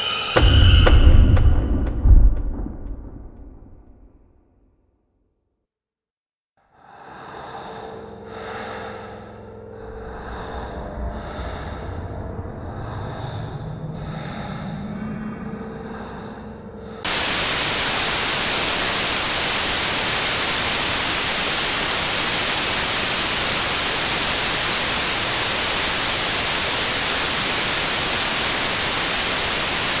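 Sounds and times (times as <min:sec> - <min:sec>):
white-noise static: 0:17.1 - 0:30.0.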